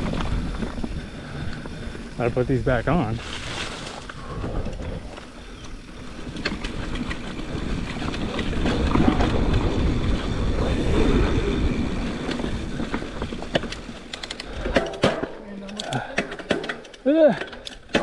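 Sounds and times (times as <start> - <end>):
wind noise on microphone: 0.0 - 2.2, 4.2 - 15.0
bike tyre rumble and rattle: 0.0 - 18.0.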